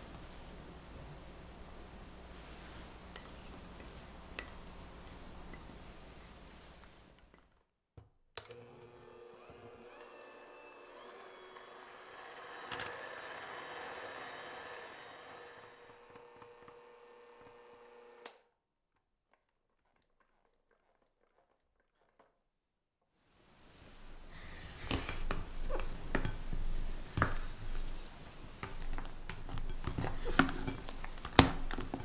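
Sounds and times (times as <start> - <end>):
hand mixer humming: 8.4 - 18.4.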